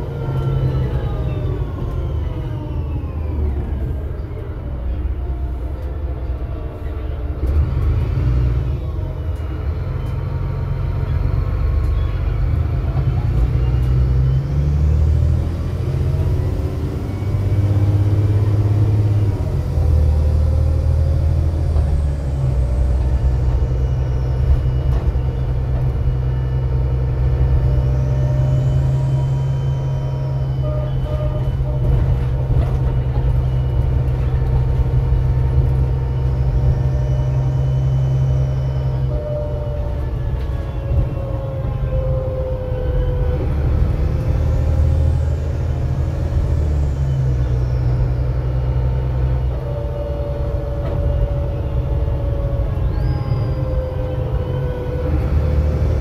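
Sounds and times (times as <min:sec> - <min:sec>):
bus diesel engine drone: 0:00.0 - 0:56.0
whining tone rising: 0:13.4 - 0:56.0.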